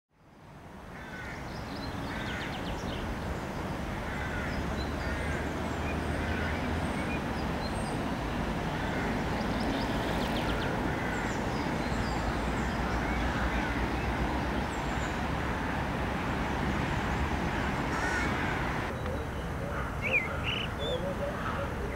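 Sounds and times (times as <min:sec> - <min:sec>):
small birds chirping: 0:16.3 - 0:21.2
high-pitched bird calls: 0:19.0 - 0:21.2.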